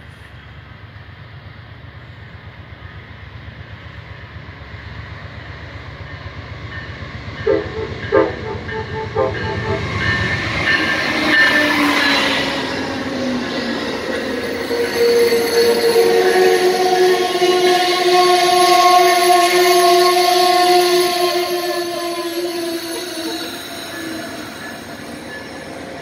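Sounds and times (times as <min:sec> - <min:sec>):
diesel locomotive passing: 0:00.0 - 0:26.0
train horn toots: 0:07.4 - 0:12.2, 0:14.8 - 0:24.7.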